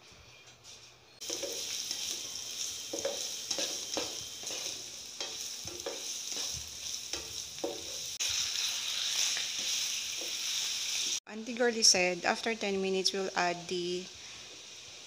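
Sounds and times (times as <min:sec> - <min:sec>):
spatula scraping a pan: 0:01.2 - 0:11.2
vegetables sizzling in oil: 0:01.2 - 0:15.0.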